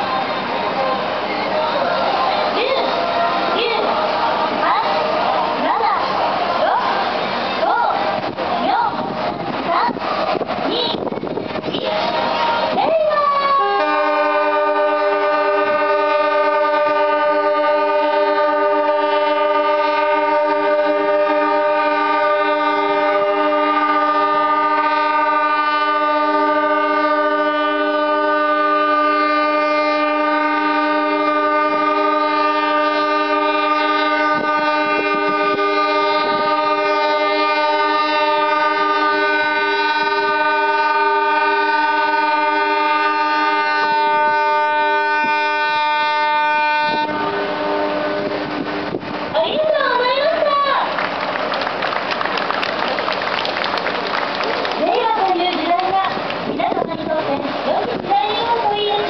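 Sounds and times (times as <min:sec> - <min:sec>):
boat horns chord: 0:11.8 - 0:49.0.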